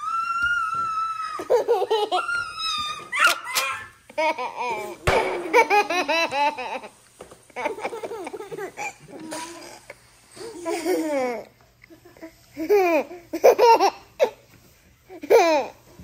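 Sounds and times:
young child laughing: 0:01.2 - 0:07.0, 0:07.6 - 0:09.6, 0:10.4 - 0:14.4.

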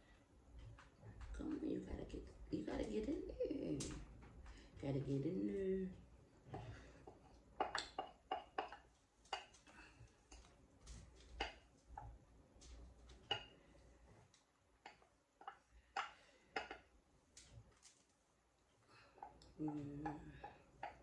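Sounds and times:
glass bowl clinking and tapping: 0:07.6 - 0:09.5, 0:13.2 - 0:13.5, 0:14.9 - 0:16.9.

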